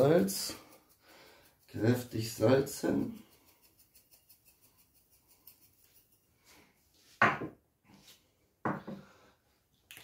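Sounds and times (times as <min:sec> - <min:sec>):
container knocking on worktop: 0:07.2 - 0:07.6.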